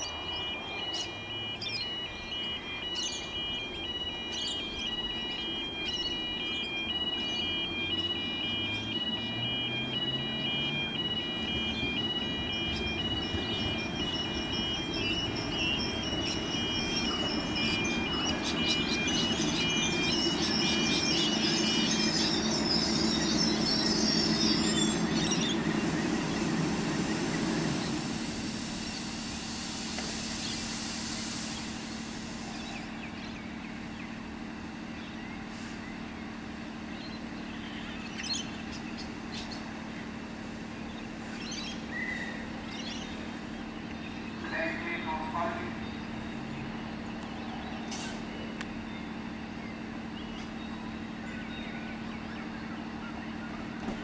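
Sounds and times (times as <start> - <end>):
diesel railcar engine and wheels: 0.0 - 54.0
engine idling low hum: 0.6 - 54.0.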